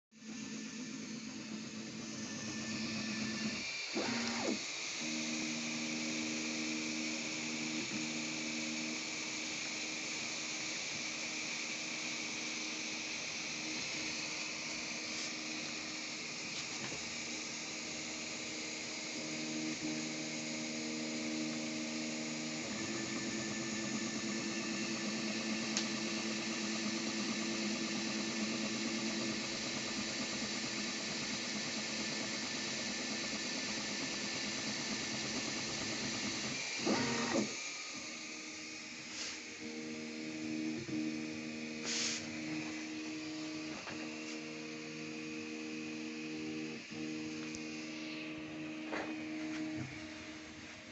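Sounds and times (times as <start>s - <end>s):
stepper motors whining: 0.2s - 50.7s
steady hiss: 41.8s - 43.0s.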